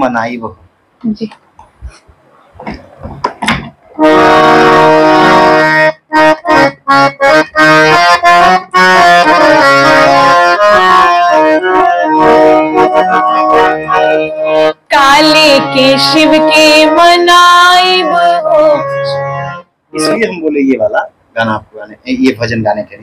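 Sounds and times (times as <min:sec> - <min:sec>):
harmonium playing: 0:04.0 - 0:20.9.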